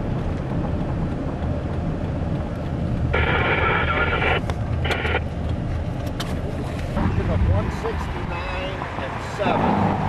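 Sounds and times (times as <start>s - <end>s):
vehicle cabin rumble: 0.0s - 10.0s
two-way radio burst: 3.2s - 5.2s.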